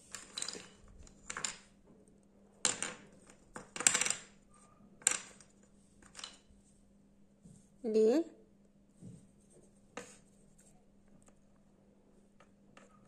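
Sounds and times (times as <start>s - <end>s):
wooden puzzle pieces clacking: 0.0s - 1.8s, 2.6s - 4.4s, 5.0s - 6.5s.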